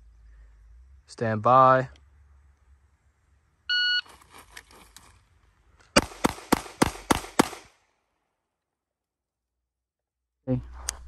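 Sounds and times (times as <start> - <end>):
pistol shots: 6.0 - 7.9.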